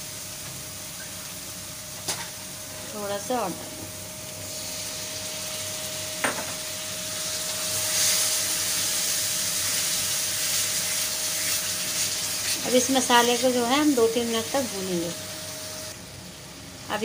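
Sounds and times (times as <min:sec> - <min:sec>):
paste sizzling in oil: 0:04.2 - 0:06.2, 0:06.9 - 0:16.0.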